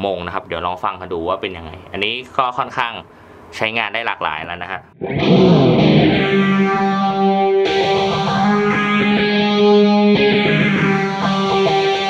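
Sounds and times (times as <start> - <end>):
electric guitar with phaser: 5.0 - 12.0.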